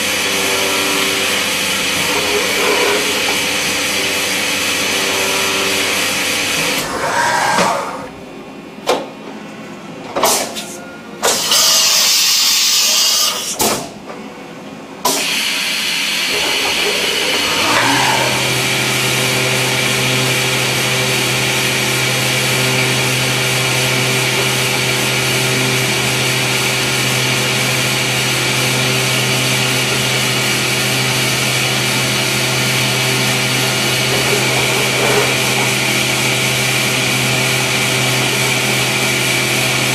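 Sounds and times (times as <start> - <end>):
milling machine cutting metal: 0.1 - 7.1, 16.2 - 21.6, 30.0 - 39.9.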